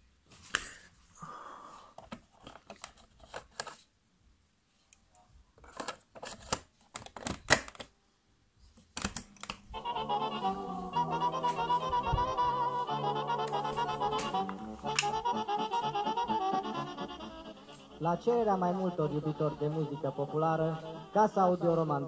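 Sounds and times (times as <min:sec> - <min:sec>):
folk music with accordion: 0:09.8 - 0:22.0.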